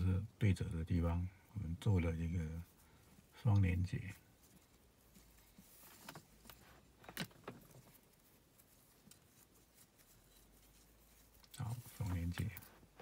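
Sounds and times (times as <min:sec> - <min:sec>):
fingers handling a cord: 0:02.6 - 0:13.0.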